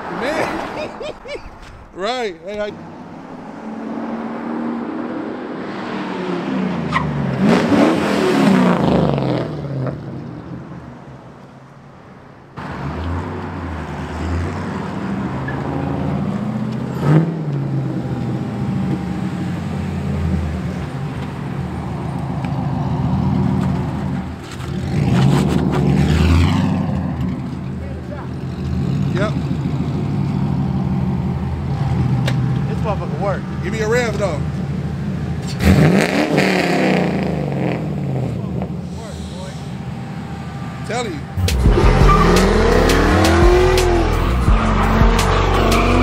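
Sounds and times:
car engine accelerating past: 22.2s - 27.7s, 41.4s - 46.0s.

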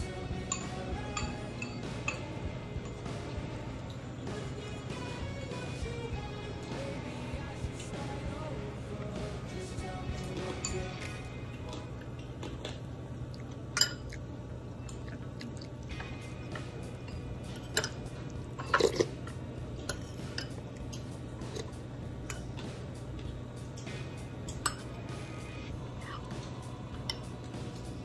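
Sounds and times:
steady low hum: 0.0s - 28.0s
spoon clinking against bowl: 0.3s - 3.1s, 10.3s - 11.2s, 13.7s - 14.2s, 17.0s - 19.1s, 23.8s - 25.0s
chewing: 10.7s - 16.7s.

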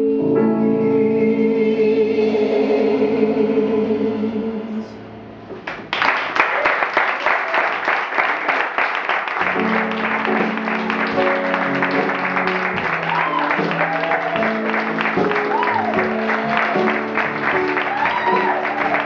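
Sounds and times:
audience applauding: 5.7s - 19.0s.

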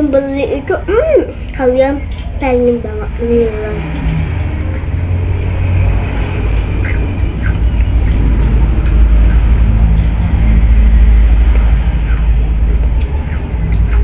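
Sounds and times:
low rumble: 0.0s - 14.0s
crunchy chewing: 3.1s - 14.0s.

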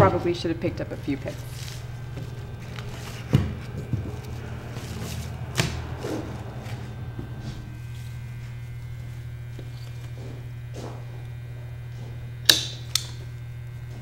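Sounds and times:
steady electrical hum: 0.0s - 14.0s
rustling of greens: 1.2s - 6.7s
pruning shears snipping: 12.4s - 13.3s.

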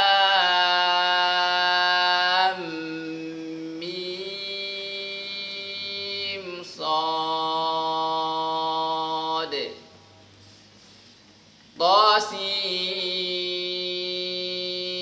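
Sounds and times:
man chanting: 0.0s - 10.1s, 11.8s - 15.0s.

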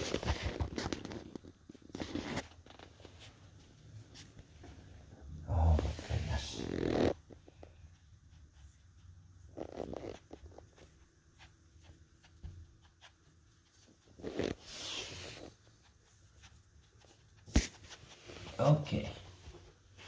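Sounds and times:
dogs scuffling and rustling: 0.0s - 4.9s.

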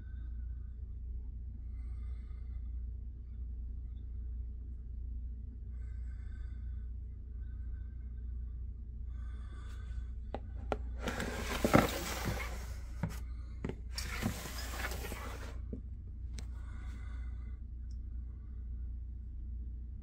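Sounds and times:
steady low hum: 0.0s - 20.0s
plastic tub scraping on shelf: 10.7s - 15.6s.

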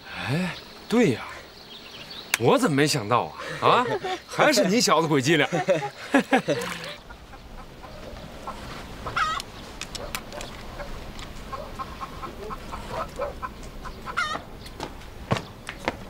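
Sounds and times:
chickens clucking: 5.3s - 14.6s.

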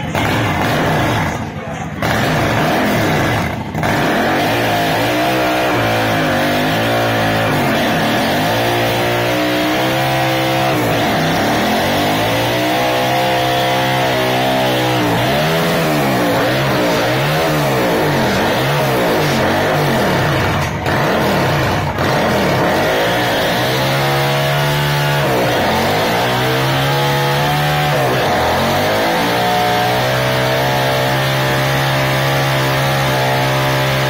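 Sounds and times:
motorcycle engine revving hard: 0.0s - 34.0s.

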